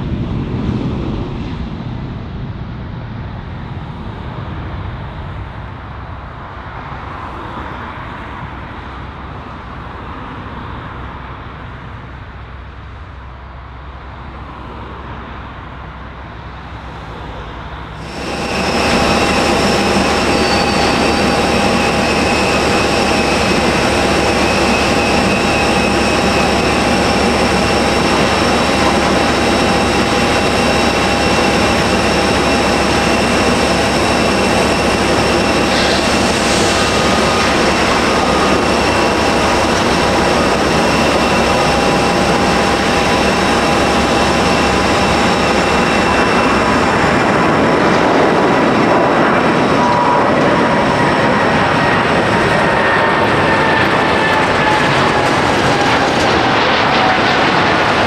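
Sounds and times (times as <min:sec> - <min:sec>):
jet engines roaring: 0:00.0 - 0:12.2, 0:13.6 - 0:58.0
high engine whine: 0:00.0 - 0:58.0.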